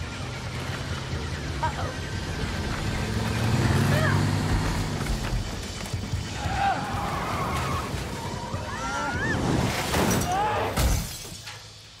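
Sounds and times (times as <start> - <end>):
windshield glass shattering: 9.7 - 11.5.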